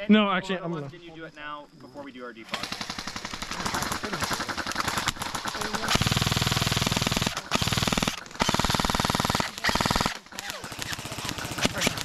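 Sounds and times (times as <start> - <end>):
airsoft guns firing bursts: 2.5 - 12.0.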